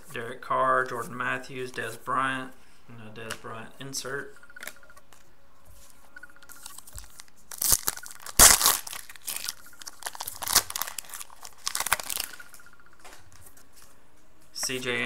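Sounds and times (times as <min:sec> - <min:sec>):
foil wrapper tearing and crinkling: 0:06.6 - 0:12.5.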